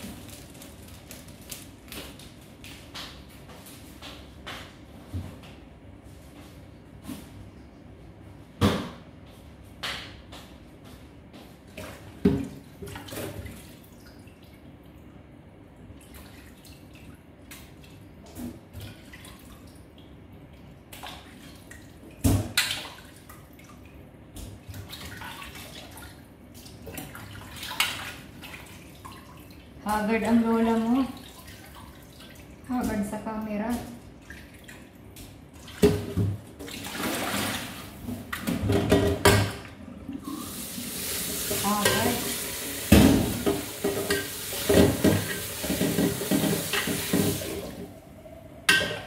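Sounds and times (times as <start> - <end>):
water splashing and dripping: 15.8 - 38.6, 40.2 - 47.8
metal basin and kitchenware clattering: 38.3 - 39.7, 41.5 - 47.7, 48.7 - 49.0.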